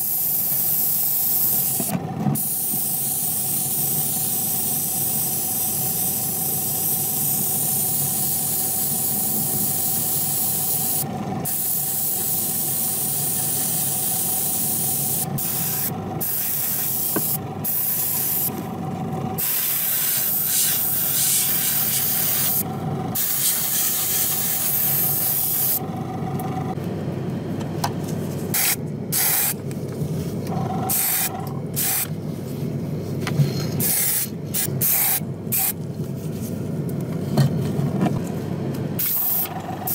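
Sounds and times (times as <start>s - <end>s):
airbrush hissing: 0.0s - 18.6s, 19.4s - 25.8s, 30.9s - 32.1s, 33.8s - 35.8s
steady low hum: 0.0s - 39.9s.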